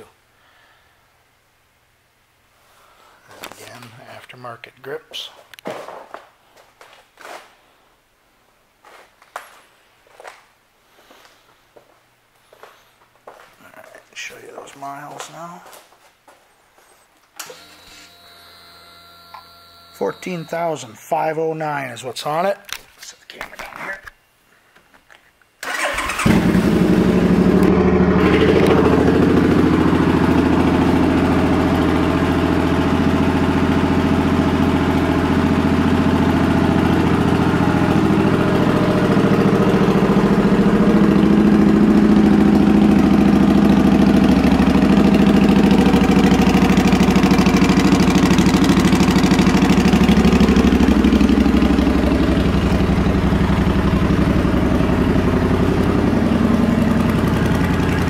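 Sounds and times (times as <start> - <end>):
motorcycle engine starting and idling: 25.6 - 58.0.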